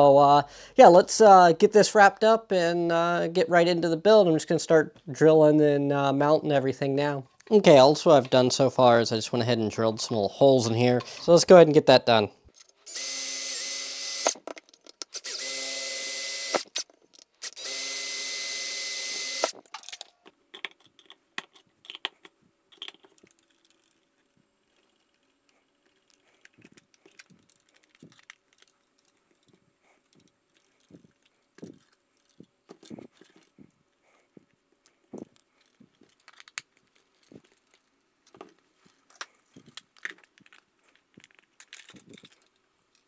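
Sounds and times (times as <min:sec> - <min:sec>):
cordless drill boring into metal: 0:12.9 - 0:14.4, 0:15.1 - 0:16.8, 0:17.4 - 0:19.6
clicks and knocks of handled parts: 0:14.2 - 0:15.3, 0:16.5 - 0:17.6, 0:19.4 - 0:33.8, 0:34.4 - 0:43.0.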